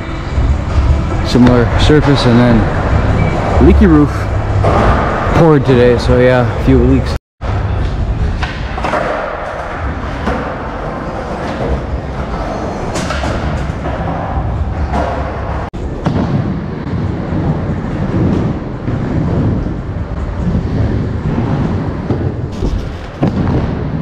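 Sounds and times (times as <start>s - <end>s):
skateboard wheels rolling on wood: 7.5s - 24.0s.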